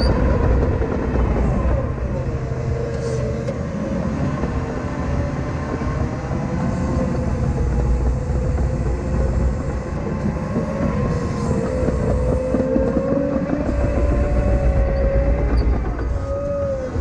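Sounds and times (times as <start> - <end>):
track loader diesel rumble: 0.0 - 17.0.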